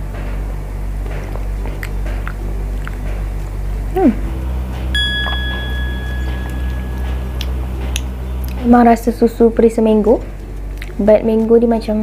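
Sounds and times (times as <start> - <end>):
low hum: 0.8 - 10.8
short falling tone: 4.2 - 8.5
bell-like ding: 5.0 - 7.9.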